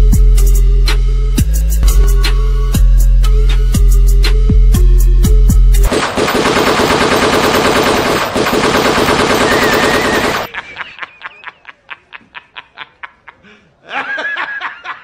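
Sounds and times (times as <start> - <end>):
machine-gun fire: 5.9 - 10.5.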